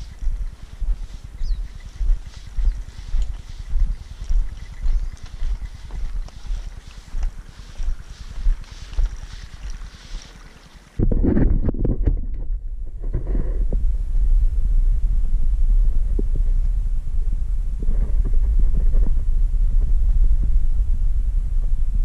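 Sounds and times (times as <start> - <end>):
irregular rustling: 0.0 - 11.0
wind buffeting microphone: 0.0 - 22.0.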